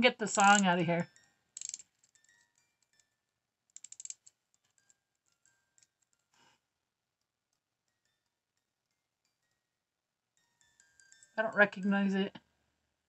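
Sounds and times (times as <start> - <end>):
music box plinking: 0.3 - 3.2, 10.4 - 12.0.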